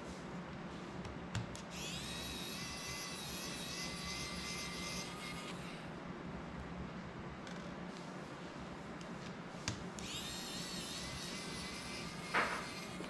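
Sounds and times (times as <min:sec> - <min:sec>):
electric screwdriver whining: 0:10.0 - 0:13.0.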